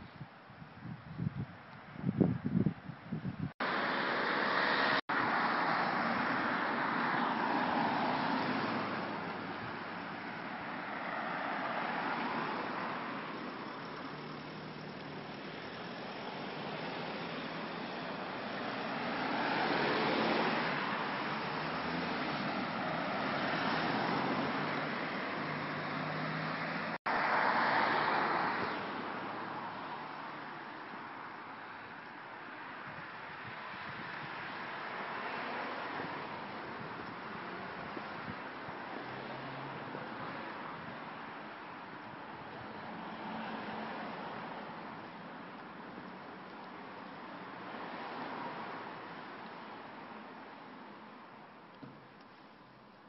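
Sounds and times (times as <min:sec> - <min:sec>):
road traffic rush: 0:00.0 - 0:53.0
wind buffeting microphone: 0:00.1 - 0:03.6
car passing close: 0:03.6 - 0:32.0, 0:33.4 - 0:51.1.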